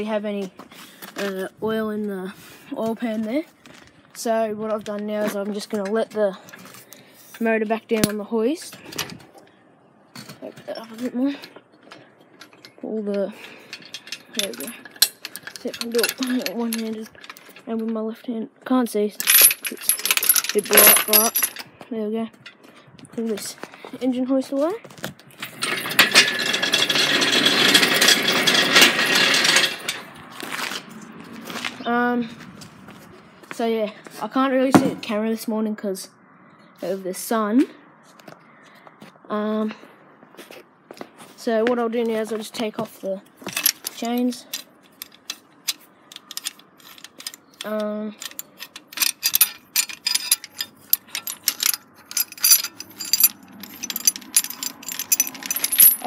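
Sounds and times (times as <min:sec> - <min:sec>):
hoist casters rolling on concrete: 0:10.1 - 0:18.3, 0:19.1 - 0:33.0, 0:43.2 - 0:56.0
steel chain clinking: 0:10.2 - 0:17.7, 0:19.2 - 0:21.7, 0:25.4 - 0:30.1, 0:43.4 - 0:56.0.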